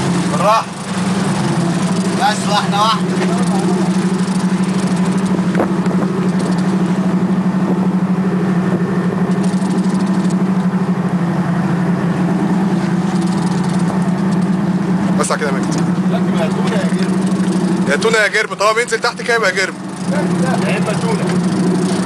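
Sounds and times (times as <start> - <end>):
boat engine running: 0.0 - 22.0.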